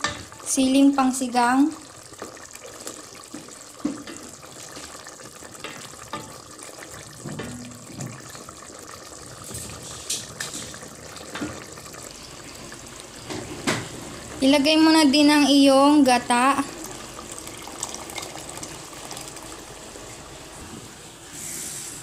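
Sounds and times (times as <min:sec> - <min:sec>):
broth bubbling in a pot: 0:00.0 - 0:22.0
spatula stirring and sloshing: 0:02.0 - 0:12.6.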